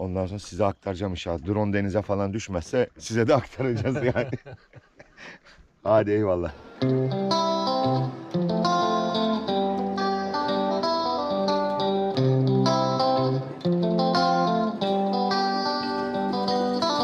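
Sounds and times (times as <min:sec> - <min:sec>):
plucked guitar melody: 0:06.6 - 0:17.0.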